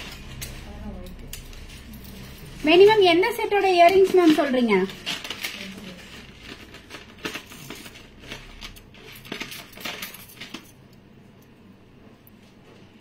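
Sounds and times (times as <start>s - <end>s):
metal jewellery clinking: 3.8s - 11.5s.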